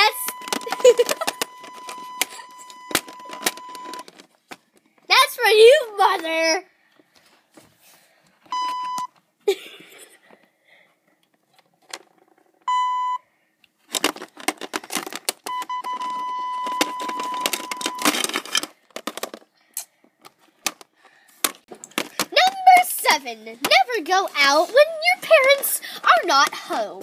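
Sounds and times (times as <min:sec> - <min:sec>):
electronic censor bleeps: 0:08.5 - 0:09.1, 0:12.7 - 0:13.2, 0:15.5 - 0:18.1
clatter of clicks and knocks: 0:13.9 - 0:19.5.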